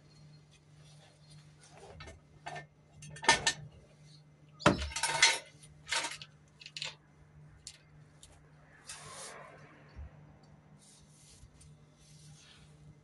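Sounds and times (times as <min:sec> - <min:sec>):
metal clinking and clanking: 0:04.6 - 0:07.0.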